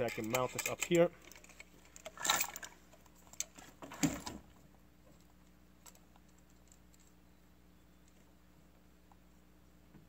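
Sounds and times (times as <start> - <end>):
rifle handling clicks and clatter: 0.0 - 4.4.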